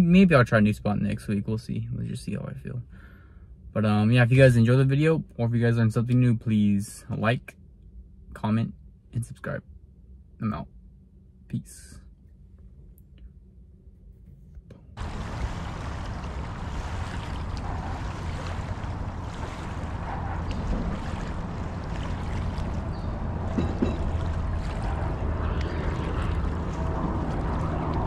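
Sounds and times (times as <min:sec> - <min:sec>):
continuous low rumble: 0:00.0 - 0:28.0
wind buffeting microphone: 0:15.0 - 0:28.0.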